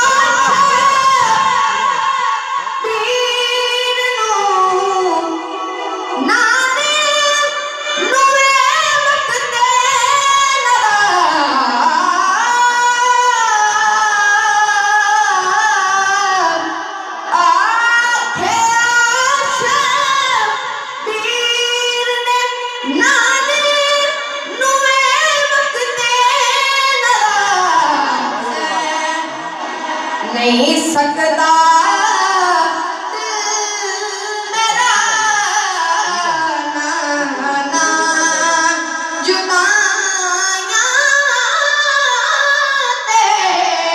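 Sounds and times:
man singing into a microphone: 0.0s - 2.2s.

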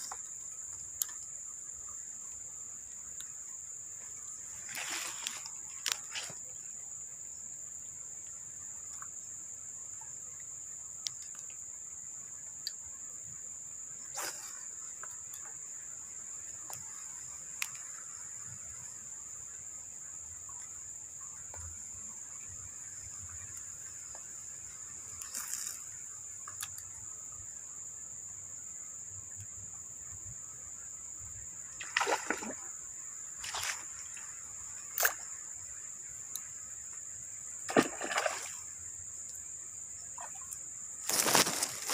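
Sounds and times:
faint ticks: 0.0s - 1.4s, 3.0s - 3.4s, 10.3s - 11.7s, 12.4s - 12.8s, 16.6s - 18.2s, 25.1s - 27.0s, 29.3s - 29.9s, 36.2s - 37.1s, 39.2s - 39.5s
small water splashes: 31.8s - 35.4s, 37.6s - 38.7s.

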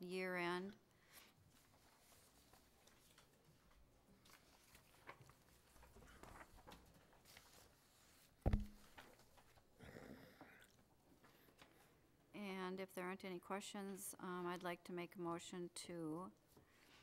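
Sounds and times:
paper handling: 1.5s - 9.6s
thump near microphone: 8.4s - 8.9s.

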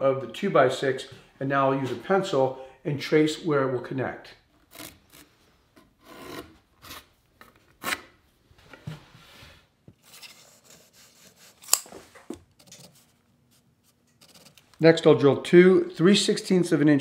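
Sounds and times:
pencil scratching on wood: 10.2s - 11.7s, 12.5s - 14.6s.

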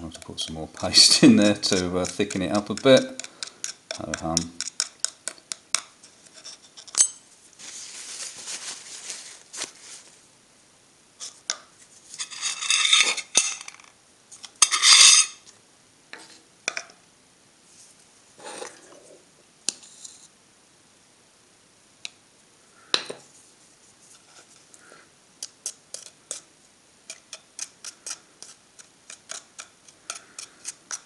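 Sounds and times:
metal tool scraping in cup: 1.0s - 4.9s, 12.2s - 13.8s, 14.6s - 15.4s, 27.1s - 31.0s.

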